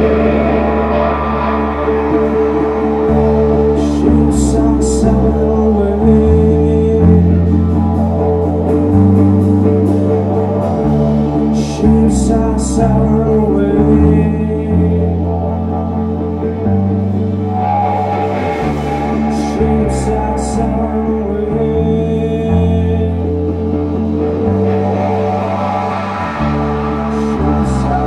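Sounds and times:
cymbals crashing: 0.0s - 4.0s, 17.4s - 21.0s, 24.5s - 28.0s
rock band playing: 0.0s - 28.0s.

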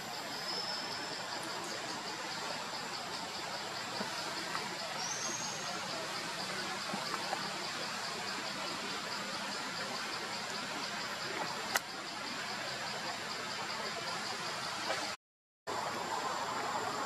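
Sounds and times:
thin steady high tone: 0.0s - 14.6s
forest background hiss: 0.0s - 17.0s.

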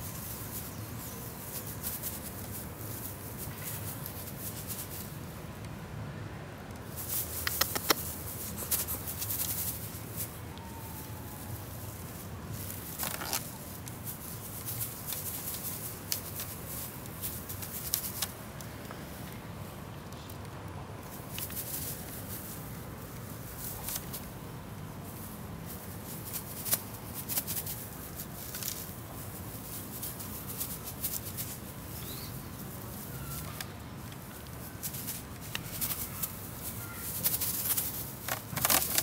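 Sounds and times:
tinsel toy rustling: 0.0s - 5.4s, 6.9s - 18.4s, 21.0s - 39.0s
kitten scrabbling on wicker: 6.9s - 10.4s, 25.6s - 28.9s, 34.2s - 39.0s.

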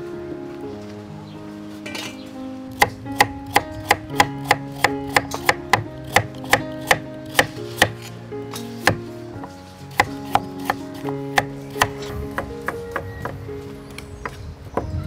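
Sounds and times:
soft background music: 0.0s - 15.0s.

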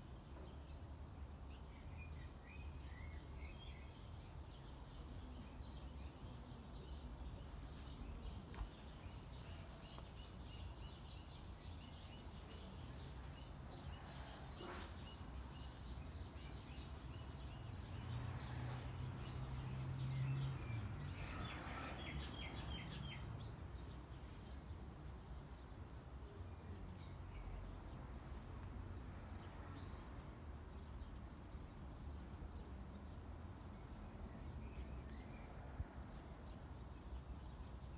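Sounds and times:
small birds chirping: 0.0s - 28.8s.

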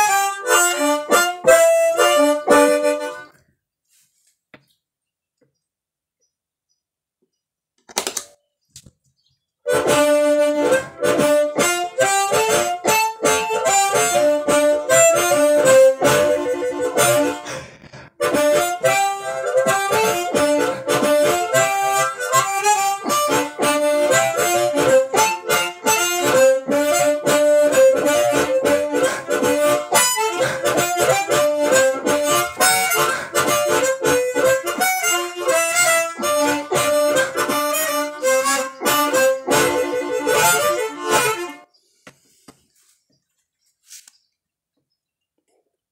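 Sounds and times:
fuzzy distorted harmonica: 0.0s - 3.4s, 9.7s - 41.8s.

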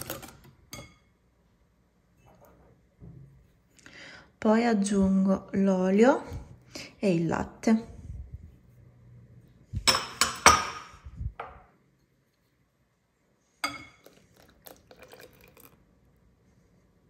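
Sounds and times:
kitchenware clinking: 0.0s - 1.1s, 9.8s - 11.6s, 13.6s - 15.7s.

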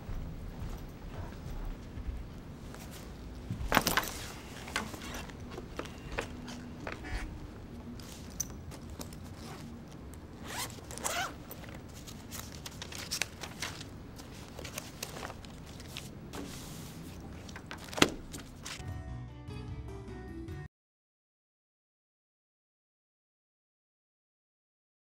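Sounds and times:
fabric case rustling: 2.7s - 7.1s, 7.9s - 18.8s
zipper pulled open: 8.2s - 12.3s
music: 18.8s - 20.7s.

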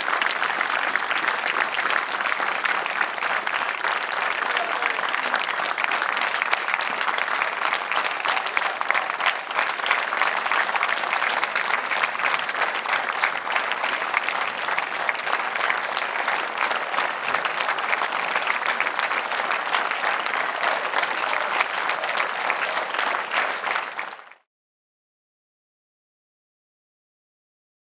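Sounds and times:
audience applauding: 0.0s - 24.5s.

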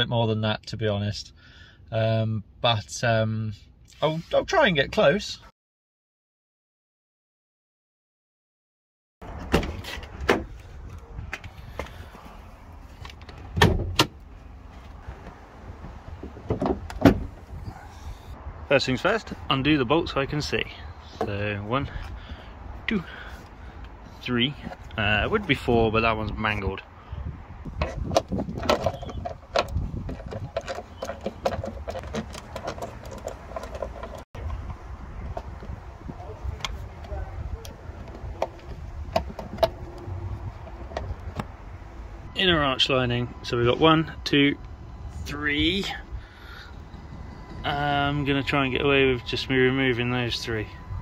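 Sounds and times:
car bonnet clunks: 13.4s - 14.2s, 15.9s - 17.6s.

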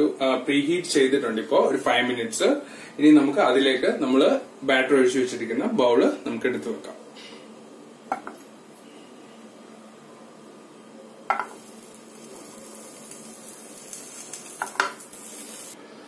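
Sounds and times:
faint hiss: 8.8s - 16.0s.

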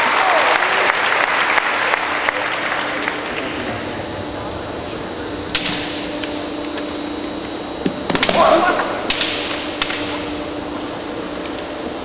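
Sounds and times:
applause: 0.0s - 3.8s
low hum: 0.7s - 12.0s.

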